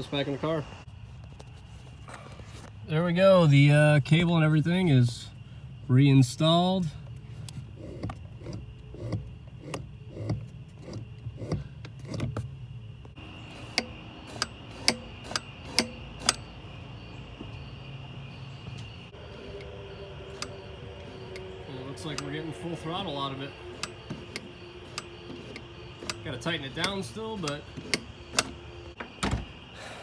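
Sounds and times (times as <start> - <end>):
faint high whine: 13.1 - 30.0.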